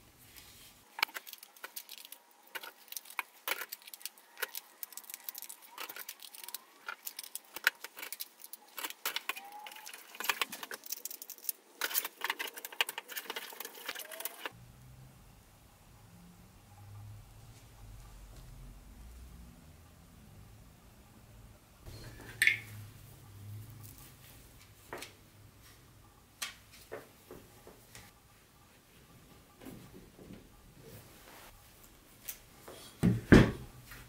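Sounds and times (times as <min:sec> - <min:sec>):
plastic track pieces clicking: 0:01.0 - 0:14.5.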